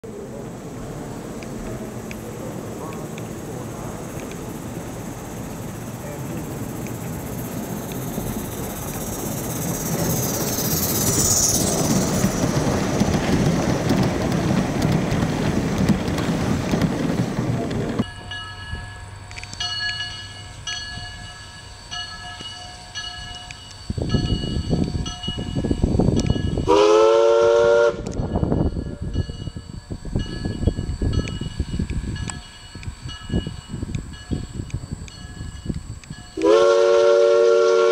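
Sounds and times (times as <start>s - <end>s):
steam locomotive exhaust puffs: 0.1s - 37.9s
steam whistle blast: 26.6s - 28.2s, 36.4s - 37.9s.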